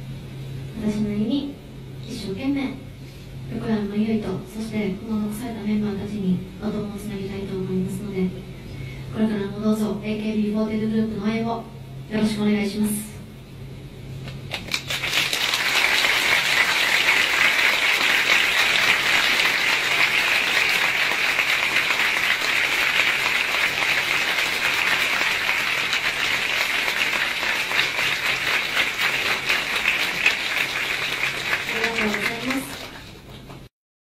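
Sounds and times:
audience applauding: 0:14.5 - 0:33.7.

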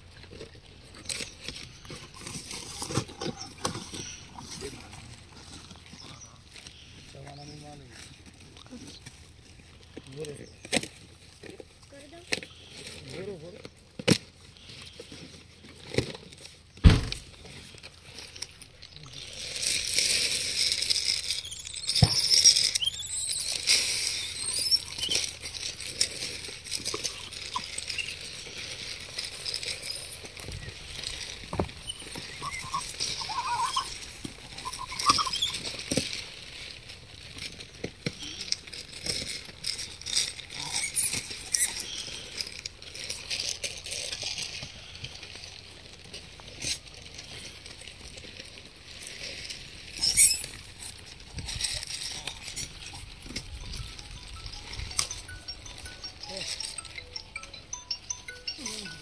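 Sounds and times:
monkeys crunching apples: 0:00.0 - 0:59.0
rustling: 0:00.0 - 0:59.0
short high chirps: 0:21.3 - 0:25.4, 0:53.6 - 0:59.0.

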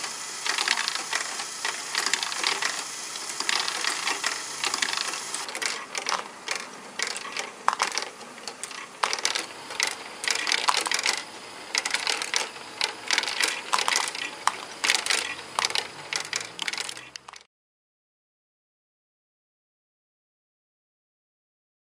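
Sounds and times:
plastic balls clicking and clattering: 0:00.4 - 0:17.5.

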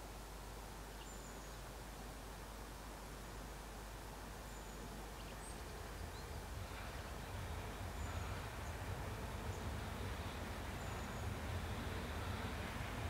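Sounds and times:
faint bird chirps: 0:00.9 - 0:01.6
train rumble: 0:04.9 - 0:13.0.

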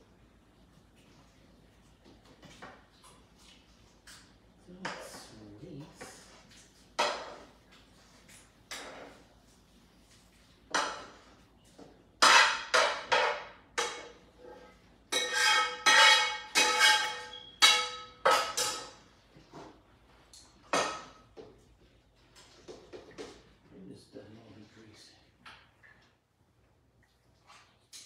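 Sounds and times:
metal kitchenware clattering: 0:07.0 - 0:07.6, 0:08.7 - 0:09.2, 0:10.7 - 0:11.3, 0:12.2 - 0:19.8, 0:20.5 - 0:21.3.

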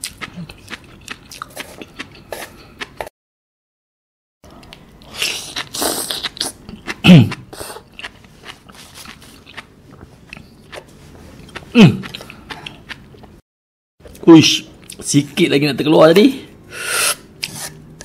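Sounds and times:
wet crunchy chewing: 0:04.7 - 0:13.4
slurping: 0:05.1 - 0:06.6
person choking: 0:06.9 - 0:07.8, 0:11.7 - 0:12.2.

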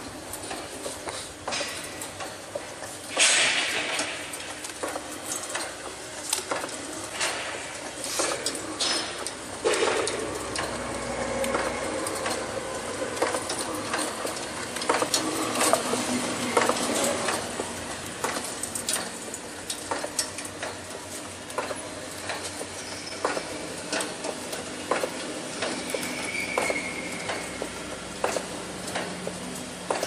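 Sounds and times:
machine running: 0:03.1 - 0:20.7.

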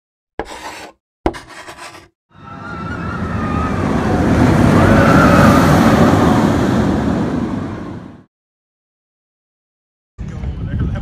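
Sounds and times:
rushing rumble: 0:02.6 - 0:08.3.

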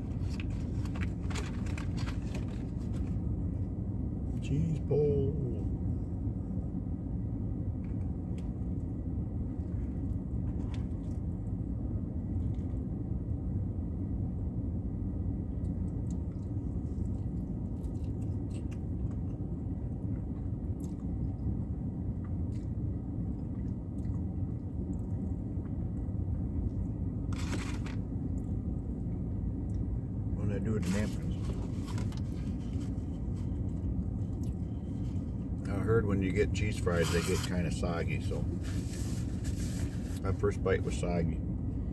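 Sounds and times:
vehicle cabin rumble: 0:00.0 - 0:41.9
faint chewing: 0:15.6 - 0:19.4.

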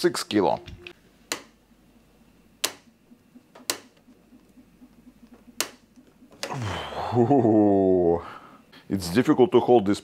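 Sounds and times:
sharp clicks: 0:02.6 - 0:06.5.

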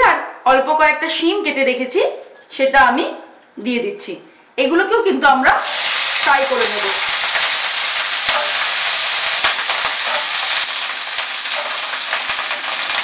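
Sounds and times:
vegetables sizzling in oil: 0:05.5 - 0:13.0.

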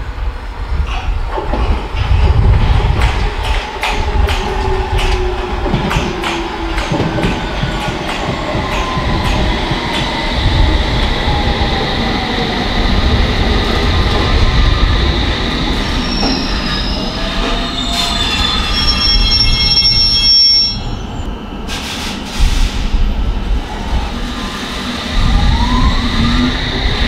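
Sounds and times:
wheels rumbling on rail: 0:00.0 - 0:27.0
high brake squeal: 0:15.9 - 0:22.7.

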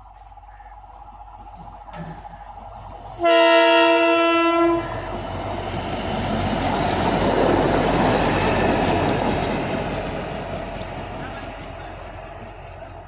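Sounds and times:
wheels on rails: 0:00.0 - 0:04.0, 0:04.8 - 0:13.0
diesel engine: 0:00.0 - 0:13.0
machine horn: 0:03.2 - 0:05.1.

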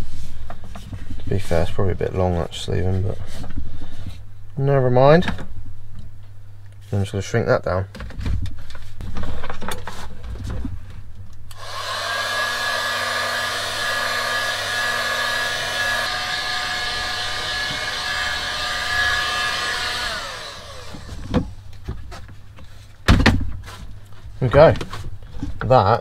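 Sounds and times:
heat gun fan blowing: 0:11.5 - 0:21.7.

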